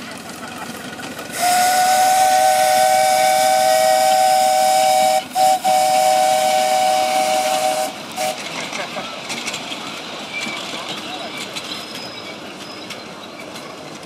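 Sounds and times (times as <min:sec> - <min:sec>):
steam hissing: 0:01.2 - 0:08.6
steam whistle two-note blast: 0:01.4 - 0:08.4.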